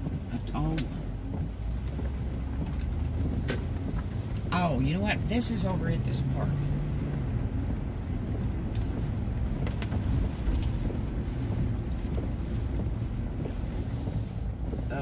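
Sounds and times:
gusty wind: 0.0s - 15.0s
rain: 0.0s - 15.0s
truck engine rumble: 0.0s - 15.0s.

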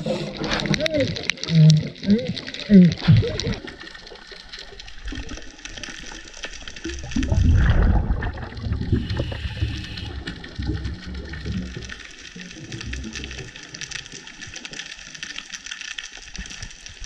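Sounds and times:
regulator exhaust bubbles gurgling: 0.0s - 4.2s, 6.8s - 13.6s
faint crackle of small clicks: 0.0s - 17.0s.

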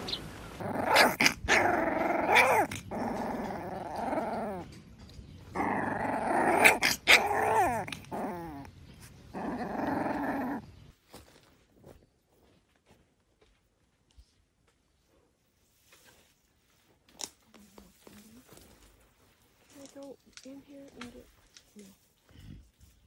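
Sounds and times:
puppy growling: 0.6s - 4.8s, 5.5s - 10.7s.

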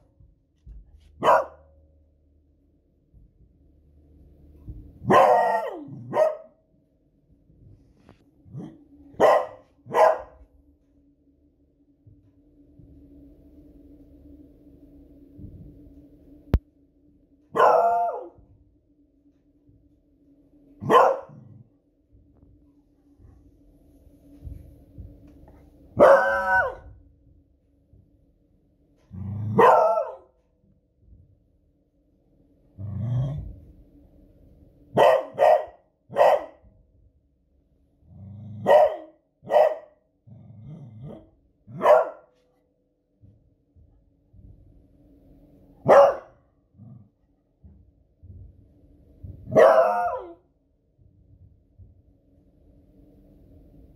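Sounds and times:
dog barking: 1.2s - 1.8s, 5.0s - 6.6s, 8.6s - 10.4s, 17.5s - 18.4s, 20.8s - 21.5s, 26.0s - 26.9s, 29.5s - 30.3s, 35.0s - 36.7s, 38.6s - 40.0s, 41.7s - 42.3s, 45.8s - 46.4s, 49.5s - 50.4s
dog growling: 32.8s - 33.6s, 40.3s - 41.4s.

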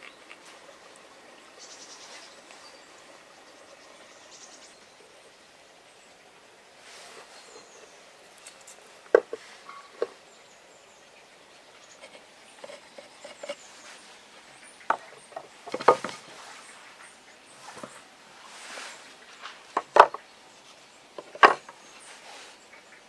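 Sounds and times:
board clattering: 9.1s - 9.4s, 12.0s - 13.6s, 14.8s - 16.4s, 19.7s - 20.2s, 21.2s - 21.8s
wooden boards knocking: 9.1s - 9.4s, 14.9s - 16.2s, 19.8s - 20.2s, 21.2s - 21.7s.

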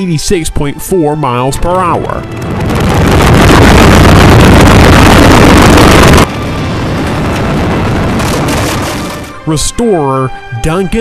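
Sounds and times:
car engine running loudly: 2.3s - 8.4s.

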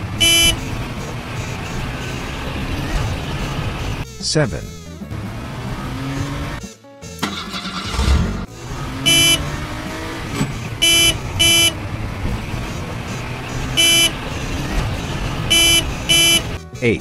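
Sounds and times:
short car horn beeps: 0.2s - 0.6s, 9.0s - 9.6s, 10.8s - 11.8s, 13.7s - 14.2s, 15.5s - 16.6s.

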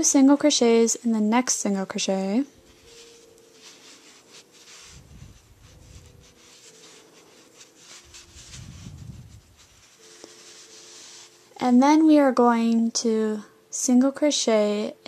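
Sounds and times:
yarn rubbing and rustling: 2.4s - 12.1s
soft low handling rumbles: 2.6s - 11.3s.

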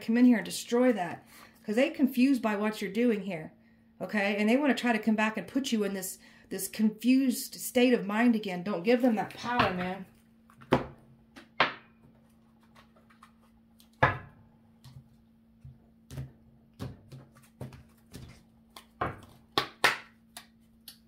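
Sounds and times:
faint steady hum: 0.0s - 21.0s
cards slapping and clicking on table: 16.1s - 21.0s.

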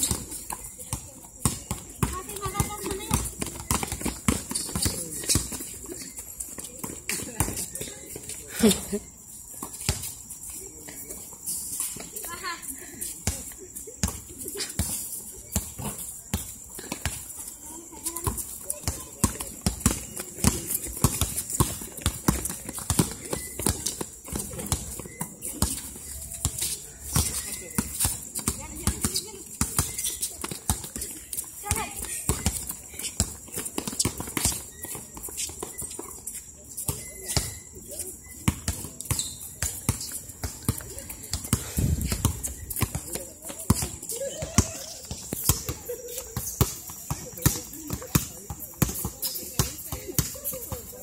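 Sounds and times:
basketball dribbling: 0.0s - 8.0s, 18.2s - 36.2s
faint voices: 0.0s - 51.0s
shoes hitting concrete court: 0.0s - 51.0s.

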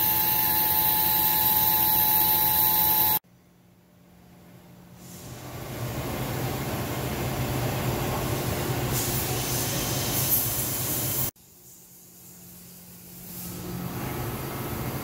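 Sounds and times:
lathe spindle whirring: 0.0s - 3.2s.

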